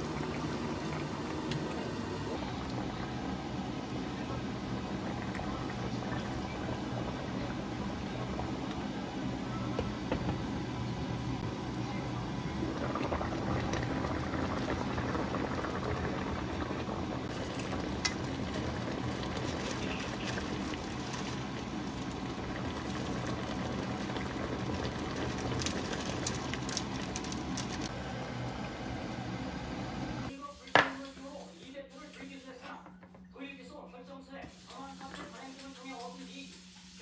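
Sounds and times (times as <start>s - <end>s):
fish stew bubbling in a pan: 12.6s - 27.2s.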